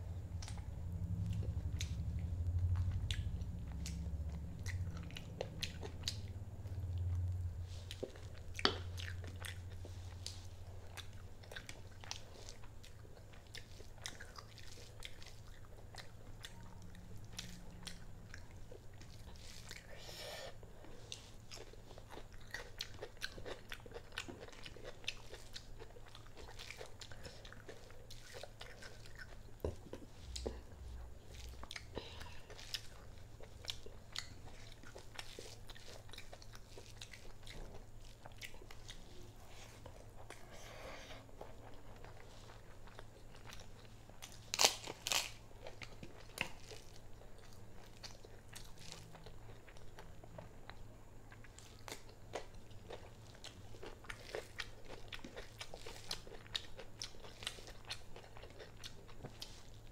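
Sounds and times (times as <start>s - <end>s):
person chewing: 0.3s - 59.9s.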